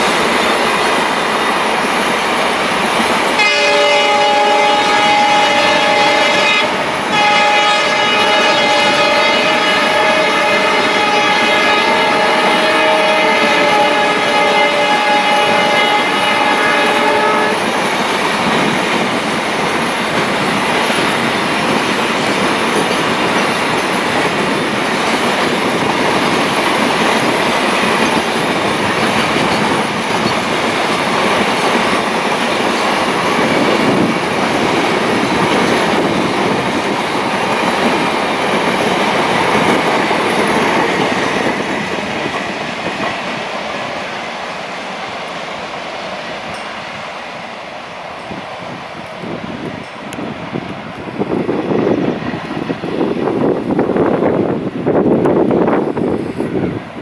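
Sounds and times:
locomotive horn: 0:03.4 - 0:17.7.

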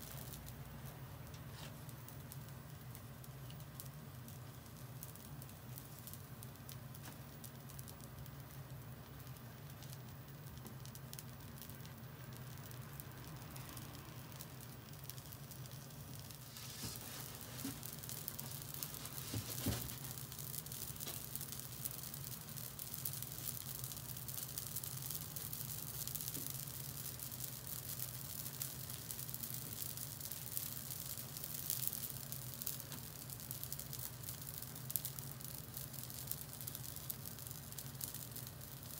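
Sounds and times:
glaze sizzling on a grill: 0:00.0 - 0:38.9.

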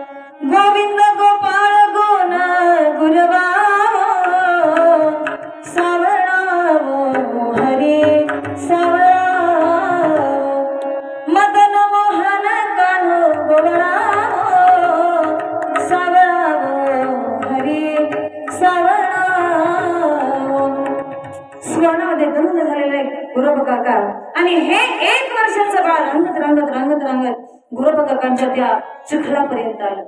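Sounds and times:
woman singing into a microphone: 0:00.3 - 0:30.0
hand drum: 0:07.0 - 0:10.4, 0:13.2 - 0:22.0.

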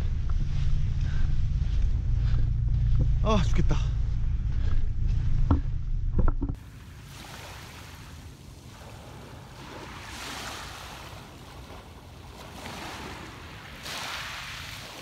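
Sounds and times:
waves washing on pebble beach: 0:06.6 - 0:15.0.

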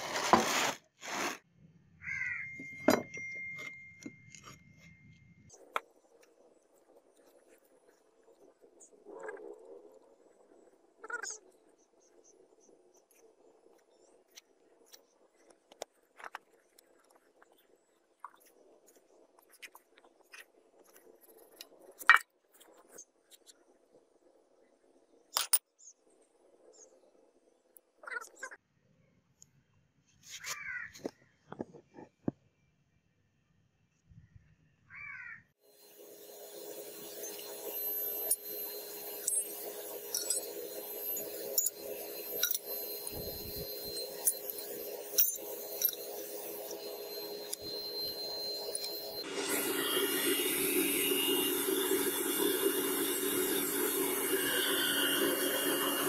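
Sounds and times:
hands scraping damp sand: 0:00.0 - 0:01.4
brass fittings clinking into crucible: 0:42.4 - 0:46.1.

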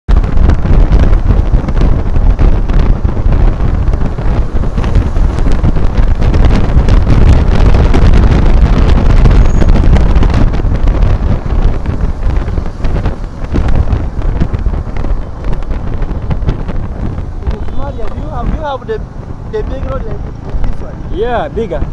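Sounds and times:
road noise: 0:00.1 - 0:21.9
wind buffeting microphone: 0:00.1 - 0:21.9.

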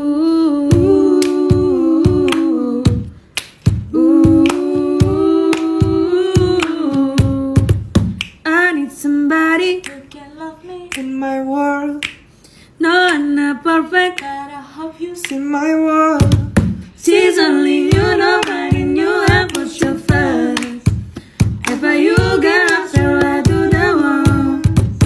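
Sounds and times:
person singing a cappella: 0:00.0 - 0:03.2, 0:03.9 - 0:25.0
hand claps: 0:00.7 - 0:08.4, 0:09.8 - 0:11.2, 0:11.9 - 0:12.3, 0:14.1 - 0:15.5, 0:17.9 - 0:25.0
finger snaps: 0:02.2 - 0:03.8, 0:07.7 - 0:08.5, 0:09.8 - 0:11.2, 0:11.9 - 0:13.4, 0:14.1 - 0:14.5, 0:15.1 - 0:15.5.

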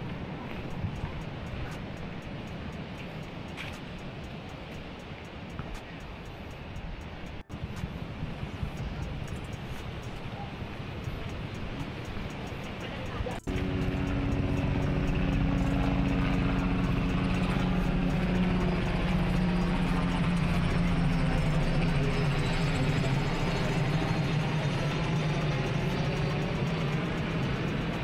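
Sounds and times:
vehicle engine running: 0:08.2 - 0:28.0.

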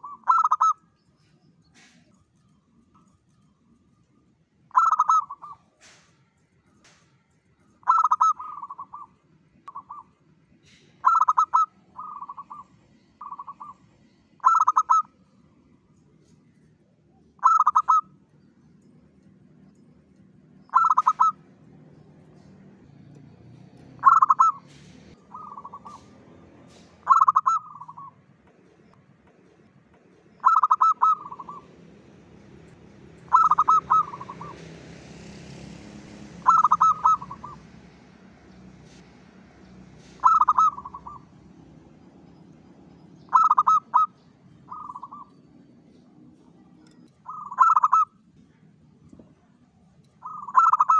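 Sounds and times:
dove cooing: 0:00.0 - 0:00.8, 0:04.7 - 0:05.8, 0:07.8 - 0:09.1, 0:09.7 - 0:13.8, 0:14.4 - 0:15.1, 0:17.4 - 0:18.2, 0:20.7 - 0:21.5, 0:24.0 - 0:28.2, 0:30.4 - 0:31.8, 0:33.2 - 0:34.7, 0:36.4 - 0:37.7, 0:40.1 - 0:41.3, 0:43.2 - 0:48.2, 0:50.2 - 0:50.9.

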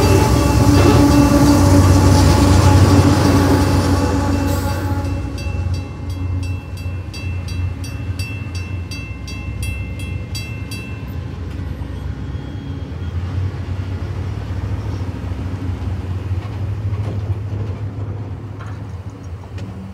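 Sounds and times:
electronic crossing bell ringing: 0:00.0 - 0:03.4, 0:04.1 - 0:12.7
road traffic rumble: 0:00.0 - 0:19.9.

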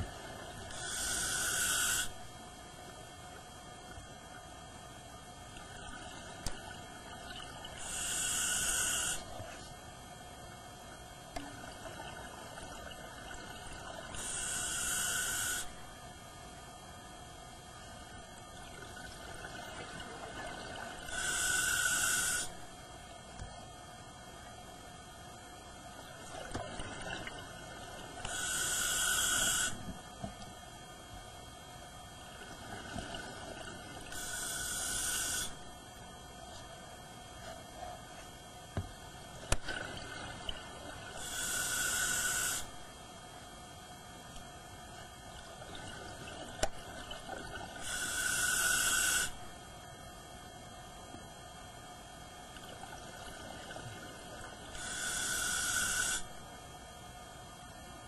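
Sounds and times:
underwater background noise: 0:00.0 - 0:58.0
scuba regulator breathing hiss: 0:00.7 - 0:02.2, 0:07.8 - 0:09.4, 0:14.1 - 0:15.7, 0:21.1 - 0:22.6, 0:28.3 - 0:29.8, 0:34.1 - 0:35.6, 0:41.2 - 0:42.7, 0:47.8 - 0:49.4, 0:54.8 - 0:56.3.

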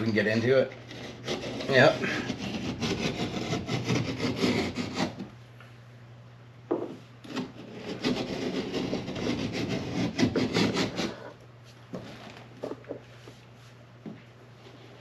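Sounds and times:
hand tool cutting into wood: 0:07.3 - 0:11.2.

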